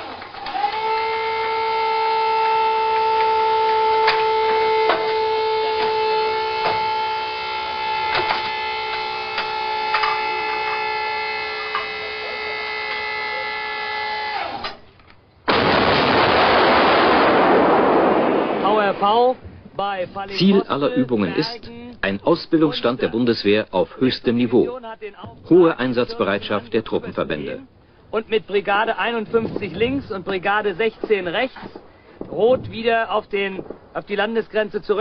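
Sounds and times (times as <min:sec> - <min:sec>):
electrical hum: 0:00.0 - 0:35.0
artillery gun blast: 0:15.4 - 0:19.6, 0:29.0 - 0:35.0.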